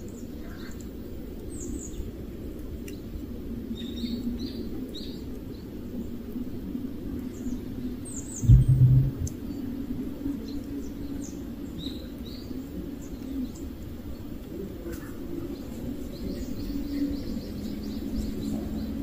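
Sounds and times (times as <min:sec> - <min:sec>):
outdoor background hum: 0:00.0 - 0:19.0
small birds chirping: 0:07.2 - 0:19.0
low rumble: 0:08.4 - 0:09.6.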